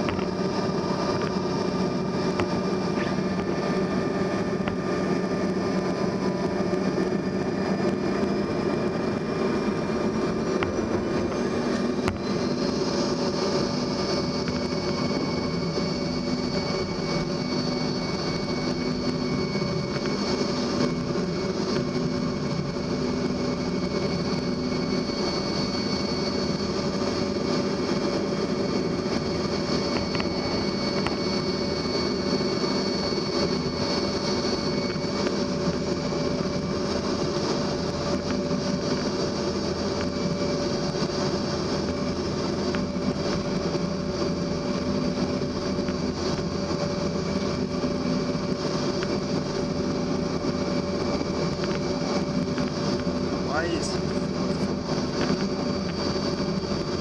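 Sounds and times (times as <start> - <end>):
high steady whine: 0.0 - 57.0
jet cabin drone: 0.0 - 57.0
lower hum: 0.0 - 57.0.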